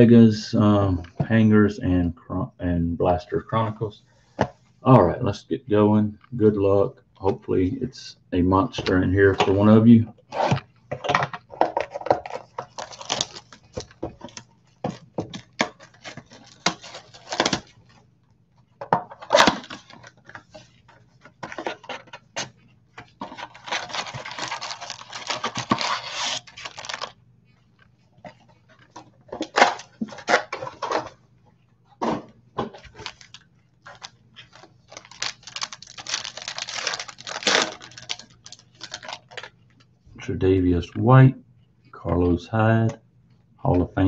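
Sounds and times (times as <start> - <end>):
cardboard rustling and clicking: 10.3 - 18.0, 18.8 - 27.2, 32.0 - 39.5
crinkling cellophane: 11.4 - 18.0, 19.1 - 31.2, 32.6 - 39.9.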